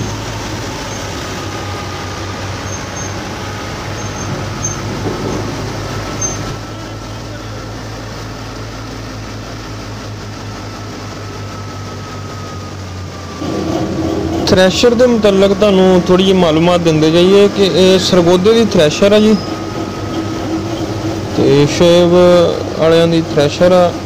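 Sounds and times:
tractor diesel engine running: 0.0s - 24.0s
faint high whine: 10.4s - 24.0s.

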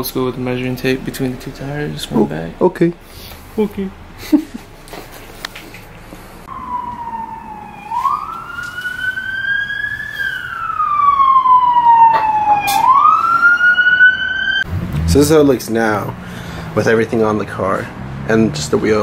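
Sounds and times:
emergency vehicle siren wailing: 6.4s - 14.7s.

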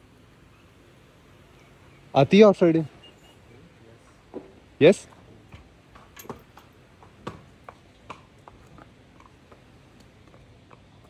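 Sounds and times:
horse hooves on brick paving: 4.0s - 11.0s.

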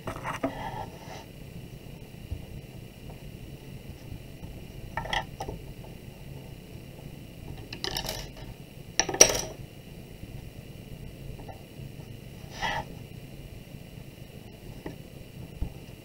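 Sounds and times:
clay slab knocks and scrapes: 0.0s - 1.2s.

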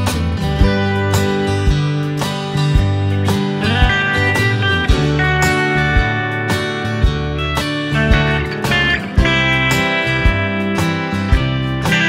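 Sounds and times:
guitar-led tune over a beat: 0.0s - 12.0s.

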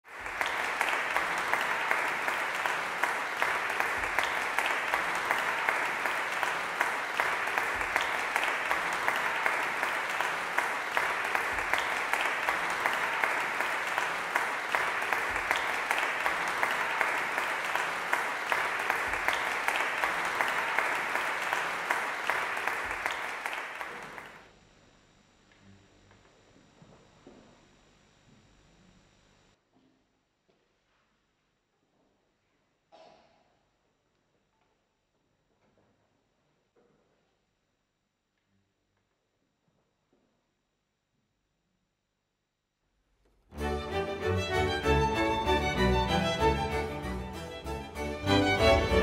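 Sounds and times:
audience applauding: 0.0s - 24.5s, 43.6s - 49.0s.

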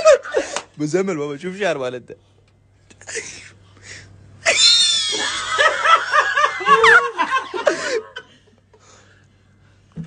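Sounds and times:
person laughing: 0.0s - 0.7s, 4.4s - 8.5s.

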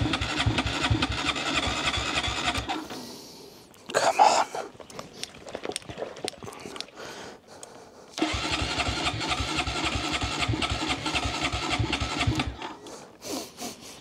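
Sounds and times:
motorcycle engine cranking: 0.0s - 3.0s, 8.2s - 12.8s.

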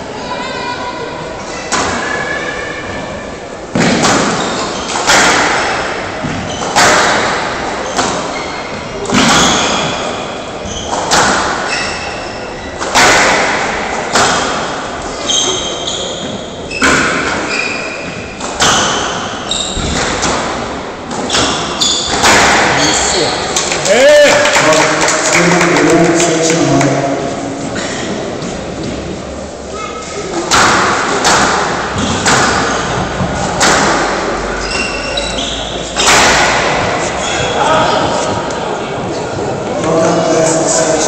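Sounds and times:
squash ball hits echoing: 1.7s - 2.1s, 3.7s - 27.2s, 30.4s - 38.6s
shoes squeaking on court floor: 4.3s - 5.1s, 6.2s - 7.0s, 7.8s - 12.8s, 15.1s - 20.2s, 21.1s - 23.6s, 34.5s - 36.2s, 37.0s - 38.5s.

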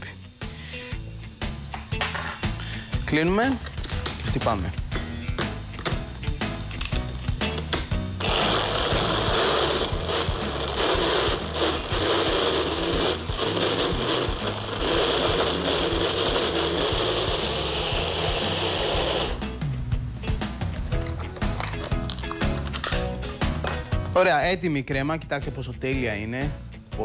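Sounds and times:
immersion blender running: 8.2s - 19.5s.

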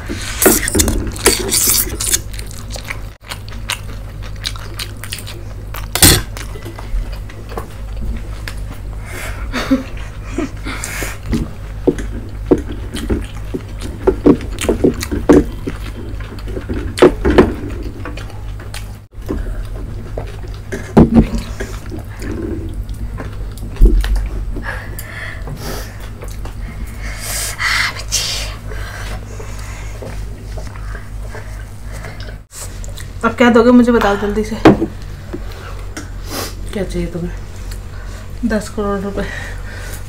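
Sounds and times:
chewing and slurping: 0.1s - 9.0s, 10.8s - 27.1s.

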